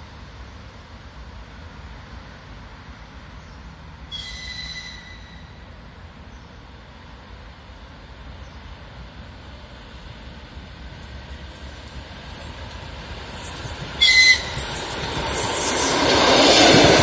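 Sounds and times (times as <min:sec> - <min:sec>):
low train rumble: 0:00.0 - 0:17.0
train whistle: 0:04.1 - 0:05.6, 0:14.0 - 0:14.8.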